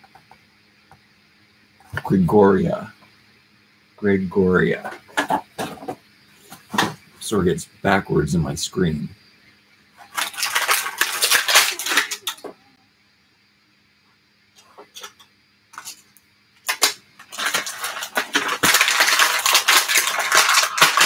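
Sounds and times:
plastic packaging crinkling: 0:10.0 - 0:12.6, 0:15.8 - 0:16.0, 0:16.6 - 0:21.0
plastic toy pieces clattering on table: 0:10.0 - 0:12.6, 0:14.8 - 0:21.0.

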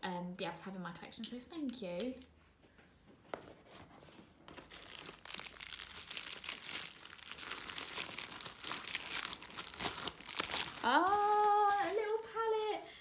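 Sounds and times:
packing paper rustling: 0:03.4 - 0:12.9
bubble wrap crinkling: 0:03.5 - 0:13.0.

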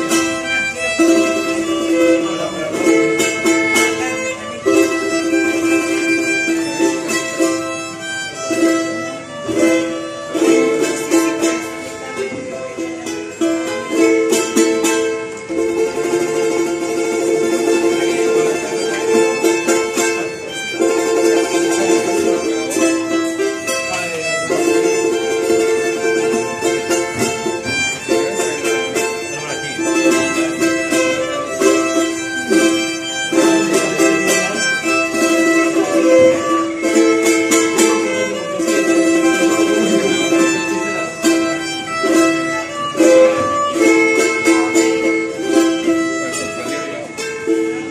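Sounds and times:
small string instrument strummed: 0:00.0 - 0:47.9
violin melody: 0:00.0 - 0:47.9.

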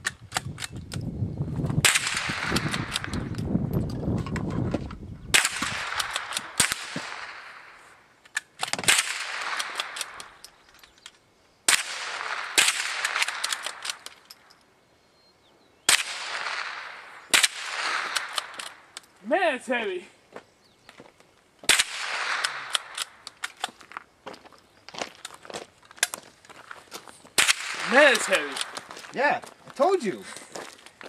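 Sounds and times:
rifle shots: 0:01.8 - 0:03.3, 0:05.3 - 0:07.8, 0:08.6 - 0:10.4, 0:11.7 - 0:14.2, 0:15.9 - 0:18.9, 0:21.7 - 0:23.6, 0:27.4 - 0:28.9
gunshot echo off hills: 0:05.3 - 0:07.8, 0:11.7 - 0:13.8, 0:15.9 - 0:18.6, 0:21.7 - 0:23.2, 0:27.4 - 0:28.8.

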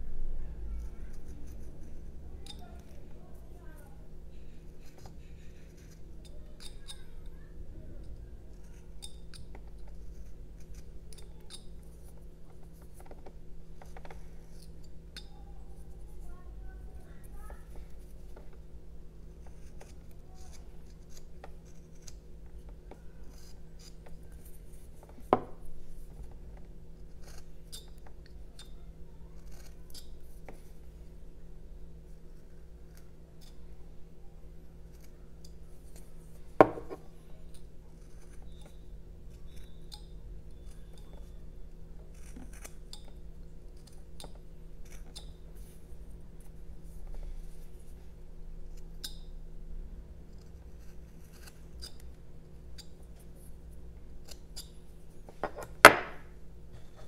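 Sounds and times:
knife slicing and scraping wood: 0:42.1 - 0:42.8, 0:50.4 - 0:52.1.

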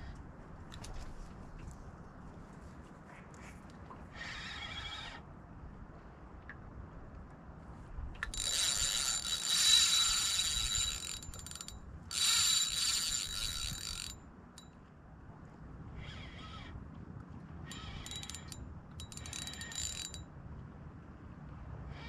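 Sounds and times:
fishing reel drag buzzing: 0:08.3 - 0:14.2, 0:17.7 - 0:20.2.

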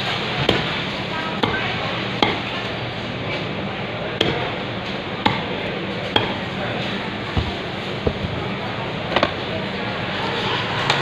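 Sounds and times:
knife chopping fish on wood: 0:05.2 - 0:05.5.

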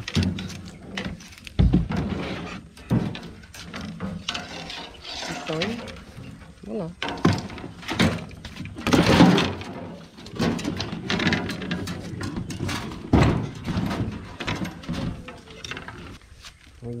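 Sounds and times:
irregular knocks and thumps: 0:00.0 - 0:05.0, 0:05.6 - 0:16.2
rustling: 0:00.0 - 0:17.0.

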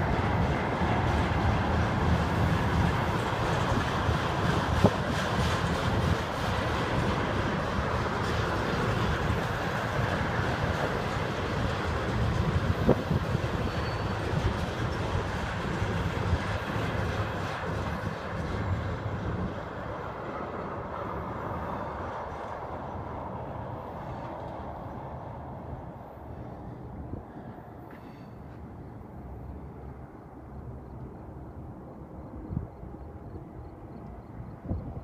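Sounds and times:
tank cars rolling on rails: 0:00.0 - 0:24.3.

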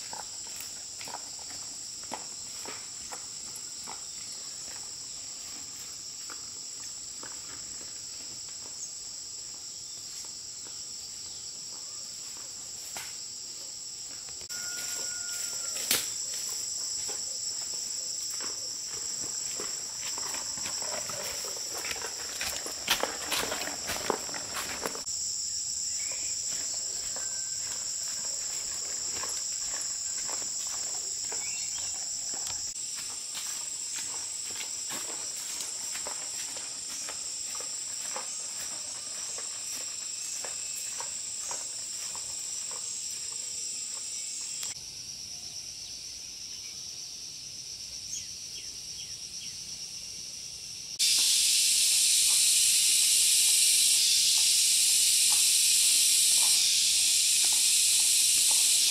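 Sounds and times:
insects droning: 0:00.0 - 0:58.9
loud steady hiss: 0:51.0 - 0:58.9.

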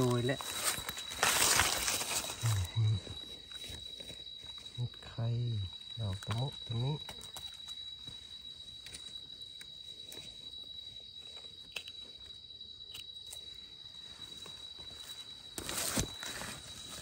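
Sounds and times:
knife and hands rustling in leaves: 0:00.0 - 0:04.6, 0:14.6 - 0:17.0
high-pitched insect trill: 0:00.0 - 0:17.0.

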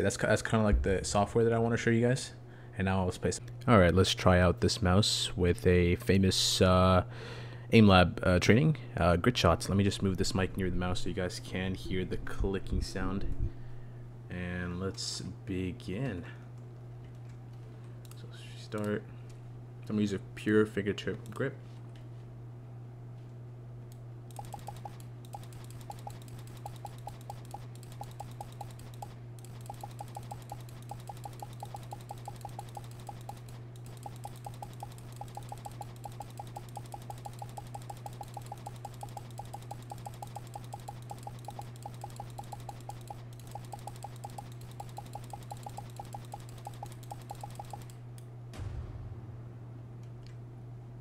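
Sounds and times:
steady low hum: 0:00.0 - 0:51.0
mouse buttons clicking rapidly: 0:24.3 - 0:48.0.

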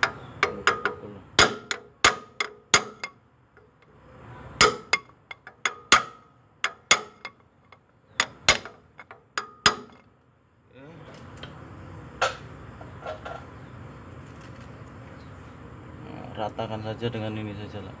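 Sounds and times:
hammer striking iron pipe: 0:00.0 - 0:03.2, 0:04.6 - 0:07.4, 0:08.2 - 0:10.0.

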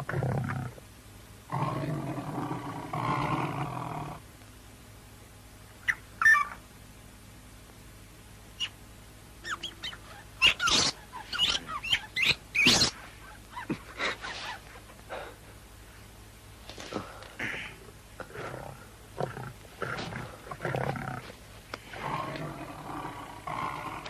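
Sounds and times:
big cat growling: 0:01.5 - 0:04.2, 0:18.2 - 0:24.0
bird of prey screeching: 0:09.5 - 0:13.0.

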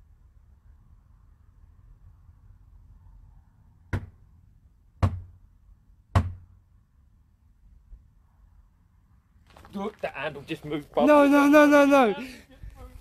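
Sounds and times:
knocking on a door: 0:05.0 - 0:05.3, 0:06.1 - 0:06.4.

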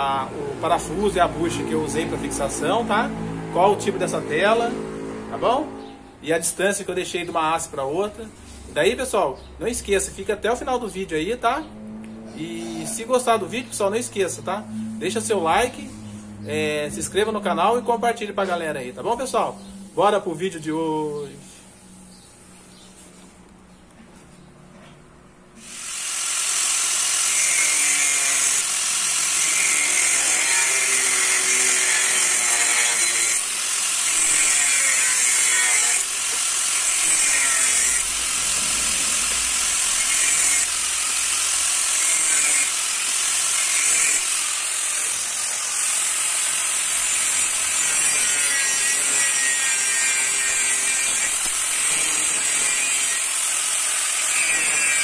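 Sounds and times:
angle grinder cutting steel: 0:25.6 - 0:55.0.

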